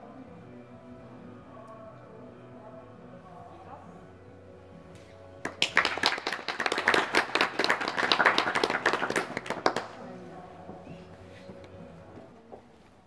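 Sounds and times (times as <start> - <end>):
spectators clapping: 5.4 - 10.1.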